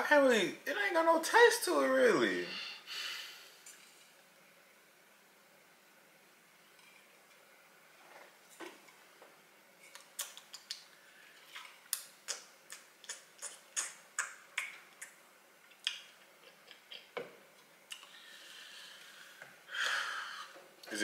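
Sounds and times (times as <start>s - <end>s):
sharp clicks and smacks: 9.9s - 10.9s, 11.9s - 18.1s.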